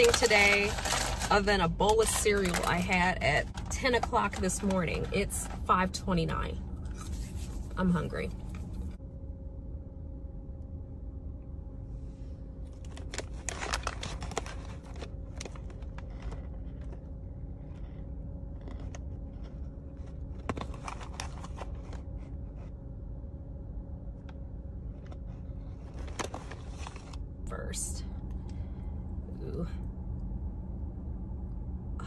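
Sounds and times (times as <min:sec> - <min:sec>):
paper wrappers crinkling: 0:00.0 - 0:06.0, 0:06.8 - 0:08.9, 0:12.7 - 0:22.7, 0:24.9 - 0:27.2
steady low hum: 0:00.0 - 0:32.0.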